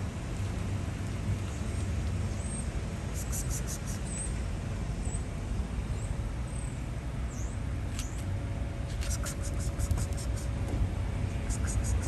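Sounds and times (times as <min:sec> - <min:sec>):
low outdoor rumble: 0:00.0 - 0:12.0
whiskers brushing phone: 0:11.5 - 0:12.0.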